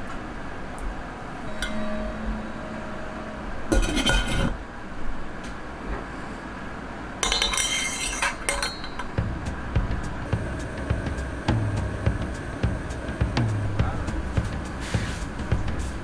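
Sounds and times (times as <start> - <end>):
metal clinking and scraping: 3.7 - 4.6, 7.2 - 9.2
metal lid clattering onto pot: 3.7 - 4.6, 7.2 - 9.1.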